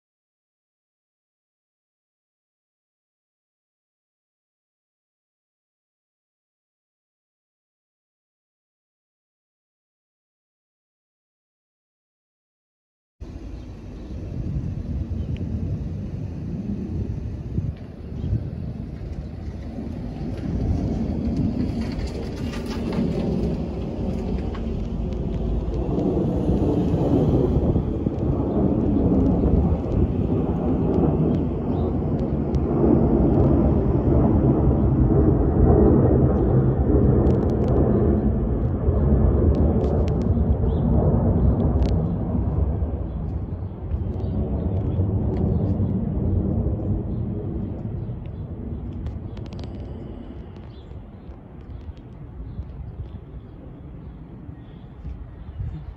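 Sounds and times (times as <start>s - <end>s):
jet airliner engines rumbling: 13.2s - 55.9s.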